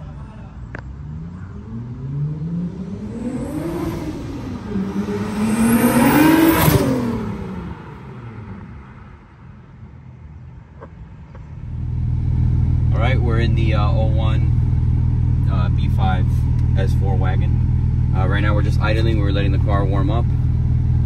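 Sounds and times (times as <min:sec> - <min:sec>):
car accelerating past: 0:00.8 - 0:09.2.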